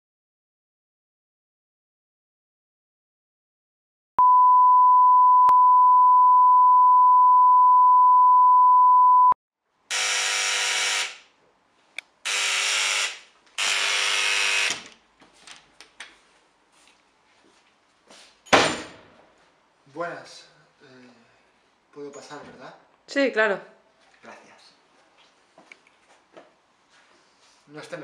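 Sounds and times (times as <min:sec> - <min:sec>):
steady test tone beep: 0:04.2 - 0:09.4
electric door buzzer: 0:09.9 - 0:11.3, 0:12.2 - 0:14.9.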